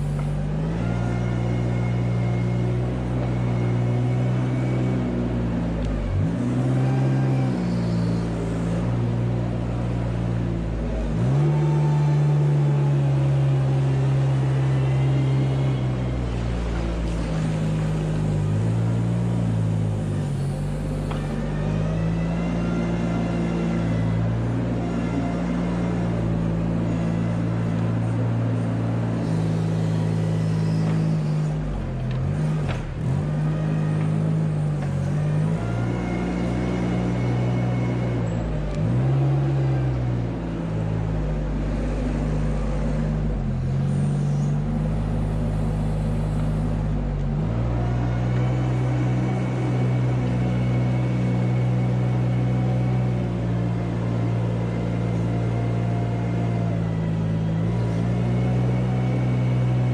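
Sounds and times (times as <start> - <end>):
small engine running: 26.8 - 38.4.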